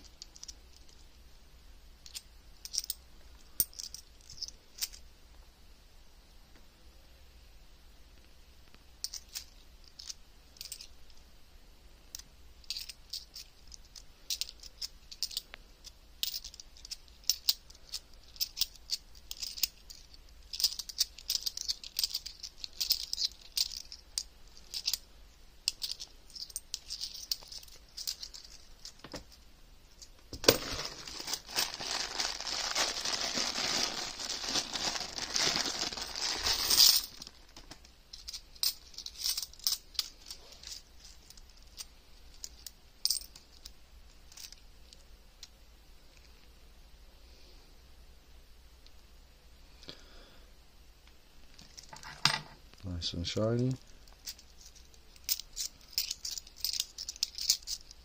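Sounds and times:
coins clinking: 12.1 - 15.4, 16.2 - 25.0, 25.6 - 29.3, 30.0 - 43.7, 54.2 - 58.0
plastic bag crinkling: 30.3 - 37.8.

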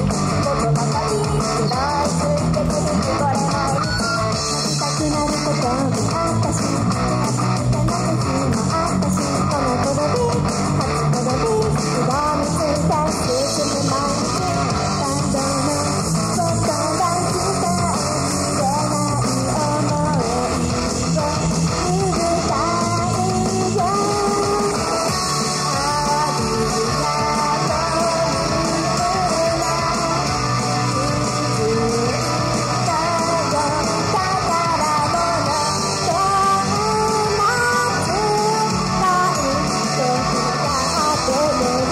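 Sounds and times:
guitar-driven pop-rock music: 0.0 - 41.9
group singing into microphones: 7.7 - 41.9.

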